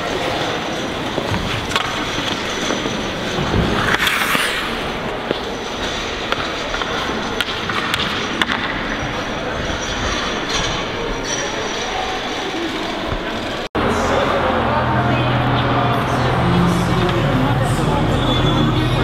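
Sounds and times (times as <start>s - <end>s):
skates scraping on ice: 0.1s - 8.8s
hockey sticks clacking on ice: 0.1s - 11.4s.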